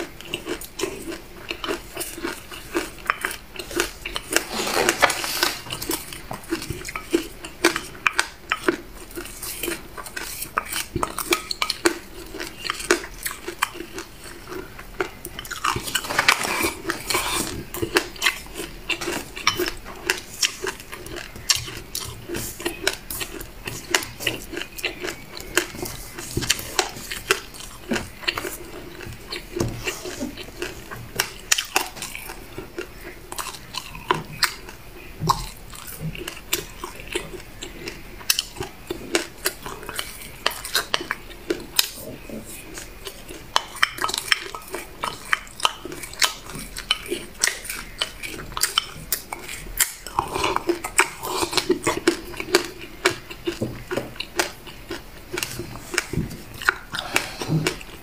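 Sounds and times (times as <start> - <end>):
chewing and mouth sounds: 0.0 - 58.0
spoon scraping glass bowl: 4.3 - 5.7.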